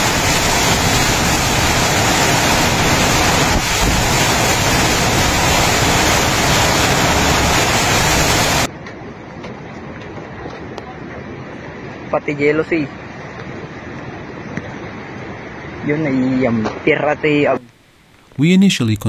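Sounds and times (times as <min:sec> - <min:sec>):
torrential rain: 0:00.0 - 0:08.7
strong wind: 0:00.0 - 0:12.2, 0:12.8 - 0:17.4.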